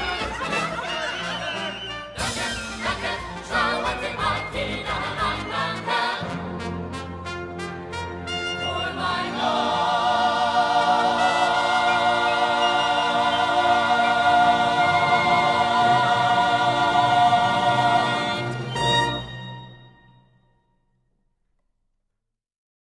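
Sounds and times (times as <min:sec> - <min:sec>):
choir holding high note: 0:08.3 - 0:19.8.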